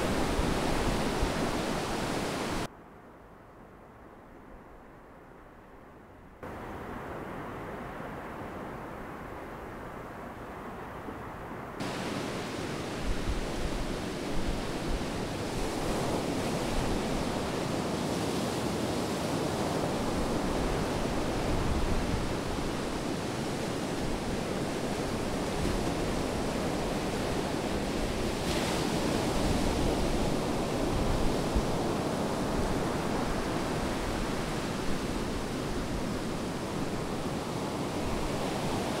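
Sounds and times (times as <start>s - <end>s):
sea surf rushing: 0.0s - 2.7s, 11.8s - 39.0s.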